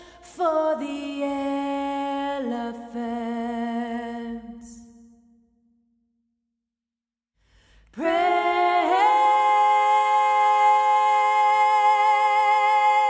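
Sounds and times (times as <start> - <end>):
woman singing unaccompanied: 8.0 - 13.0.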